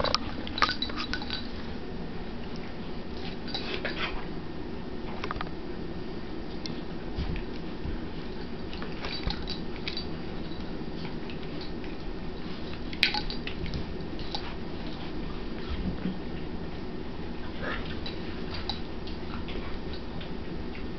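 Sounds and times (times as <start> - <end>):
steady low hum: 0.0 - 20.9
dogs play-wrestling: 2.7 - 4.4, 6.6 - 20.9
light clicks and clinks: 8.4 - 11.8.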